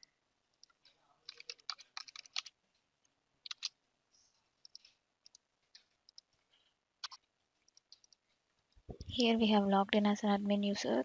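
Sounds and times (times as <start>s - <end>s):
keyboard clicks: 0.0s - 2.5s, 3.4s - 3.8s, 4.6s - 6.3s, 7.0s - 8.2s.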